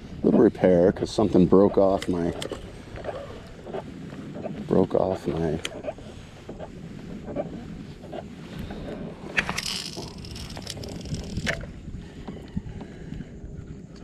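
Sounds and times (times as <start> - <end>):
fishing reel clicks: 9.4 - 11.6.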